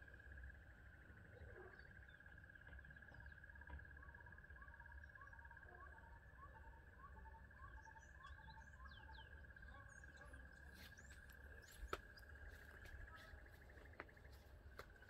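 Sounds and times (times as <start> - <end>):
birds chirping: 5.9 - 15.0.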